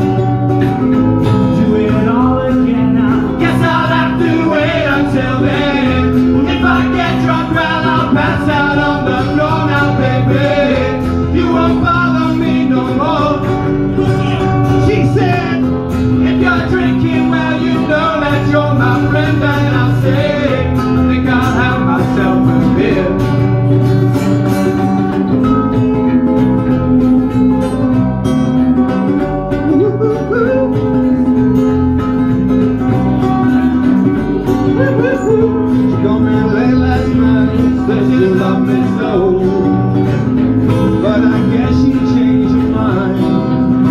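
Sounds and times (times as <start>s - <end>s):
electric bass guitar: 0.0s - 43.9s
strummed acoustic guitars: 0.0s - 43.9s
men singing: 1.4s - 23.6s, 34.6s - 43.9s.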